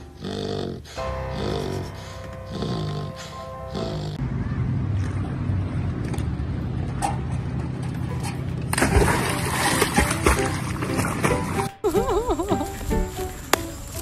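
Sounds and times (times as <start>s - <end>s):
background music: 0.0s - 4.2s, 9.0s - 14.0s
low rumble: 1.0s - 9.6s
water churning: 8.0s - 11.8s
dog splashing into water: 8.7s - 11.6s.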